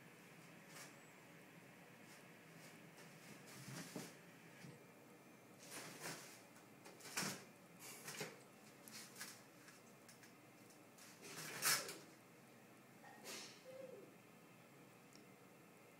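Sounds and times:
toilet paper rustling: 5.6 - 10.2, 11.0 - 12.0.

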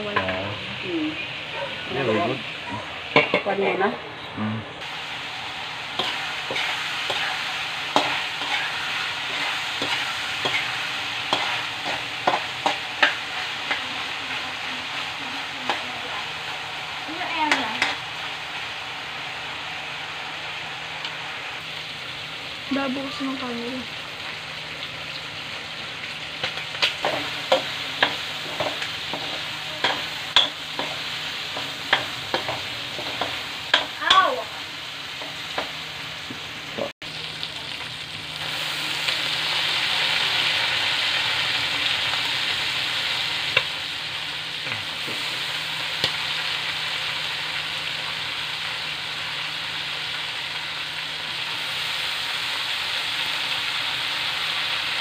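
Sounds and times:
utensil clinking and scraping wok: 0.0 - 0.8, 1.5 - 3.9, 4.8 - 18.7, 26.0 - 35.8
food sizzling in a wok: 0.0 - 55.0.

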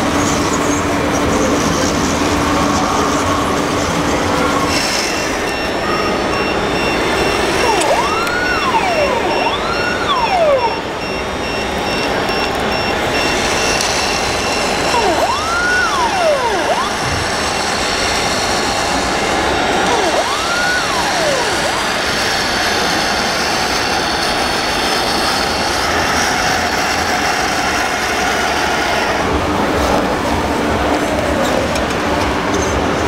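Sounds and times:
hall and crowd noise: 0.0 - 33.0
small electric motors whining: 5.3 - 10.9, 12.5 - 18.3, 19.8 - 26.1
fast high electronic beeping: 5.3 - 17.3, 19.9 - 22.2.

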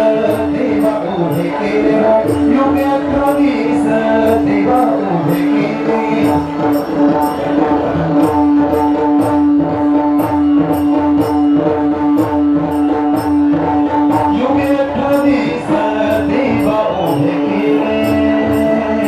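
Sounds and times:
held drone note: 0.0 - 19.0
instrumental melody: 0.0 - 19.0.

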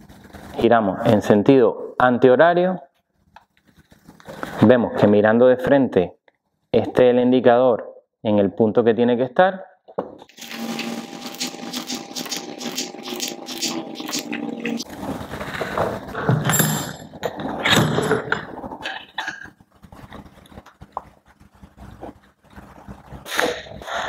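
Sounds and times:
steady hum: 10.3 - 19.2
scraping and handling noises: 12.3 - 23.2.

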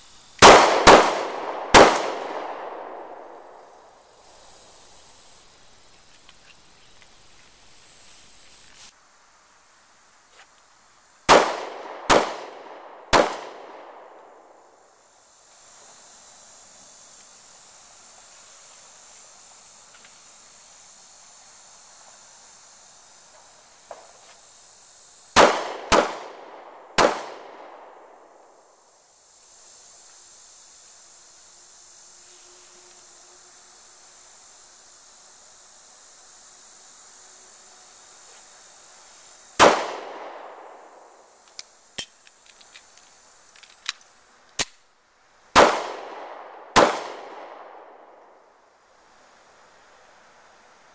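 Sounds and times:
insects buzzing: 0.0 - 50.9
pistol shots with echo: 0.4 - 3.2, 11.3 - 14.0, 25.4 - 27.7, 39.6 - 40.6, 45.6 - 47.8.

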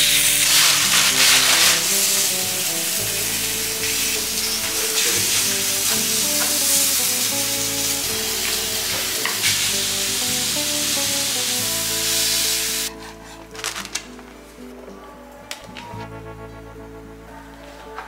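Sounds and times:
meat sizzling in a pan: 0.0 - 12.9
background music with simple melody: 0.0 - 18.0.

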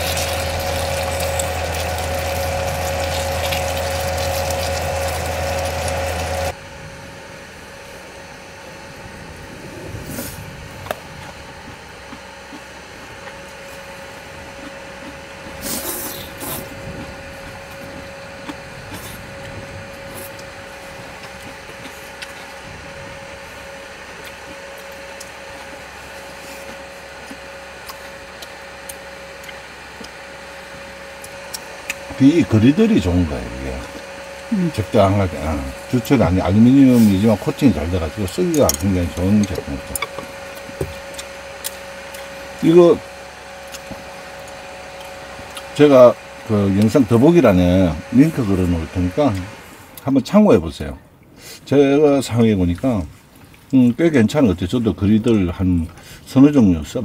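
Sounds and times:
electric cooker hum: 0.0 - 57.0.

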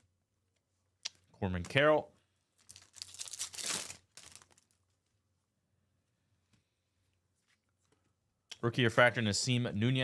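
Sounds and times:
wrapper tearing and crinkling: 2.6 - 4.8.

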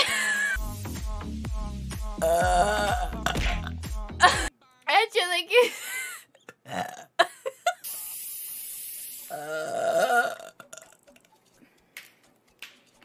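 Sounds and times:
man burping: 2.2 - 4.5, 6.4 - 7.3, 9.3 - 11.2
steady hiss: 7.8 - 9.4.

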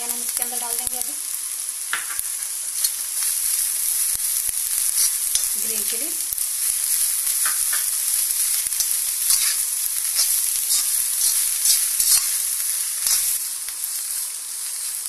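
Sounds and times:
vegetables sizzling in hot oil: 0.0 - 15.0
spatula scraping a pan: 4.7 - 5.7, 6.7 - 13.4.

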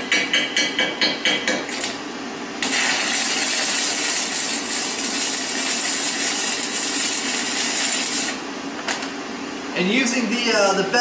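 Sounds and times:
welding arc hissing: 2.6 - 8.5.

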